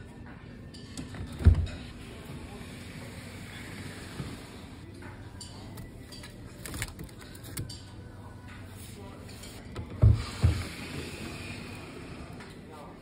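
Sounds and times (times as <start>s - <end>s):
plastic-wrapped ice creams rustling: 6.5s - 7.6s.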